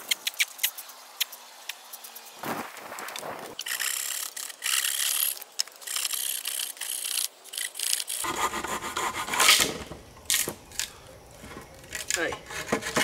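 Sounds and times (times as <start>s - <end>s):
rope rasping against wood: 8.2s - 9.7s, 12.4s - 13.0s.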